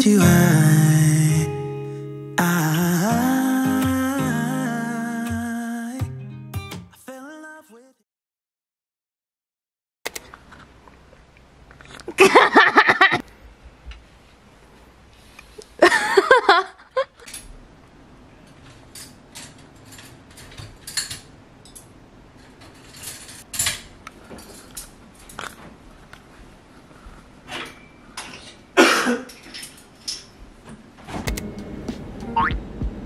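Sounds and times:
high wavering vocal sound: 0:00.0 - 0:06.1
utensils clinking on dishes: 0:18.5 - 0:25.4.

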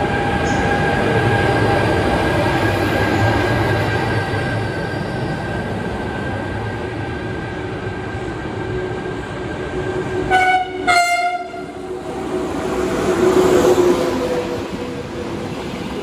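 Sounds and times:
train horn short blasts: 0:10.3 - 0:11.8.

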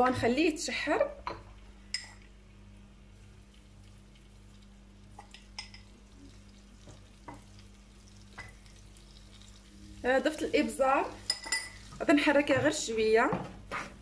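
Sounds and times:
onion sizzling in frying pan: 0:03.0 - 0:13.1.

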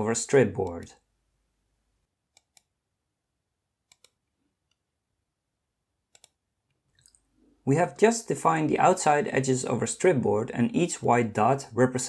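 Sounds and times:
computer mouse double-clicks: 0:03.9 - 0:04.2, 0:06.1 - 0:06.4.

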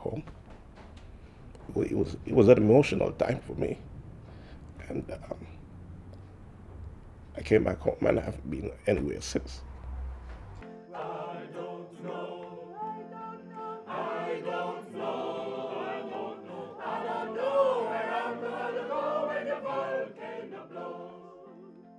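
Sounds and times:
men's choir singing in harmony: 0:10.6 - 0:21.7.

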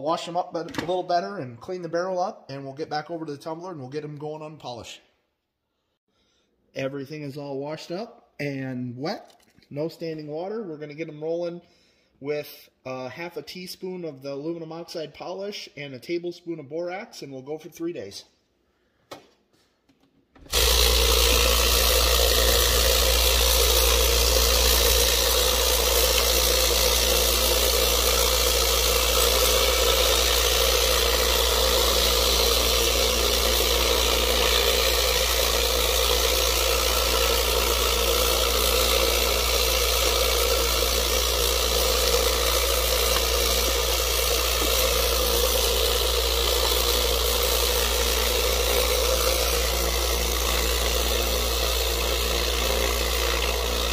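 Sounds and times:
low motor hum: 0:20.5 - 0:53.9.

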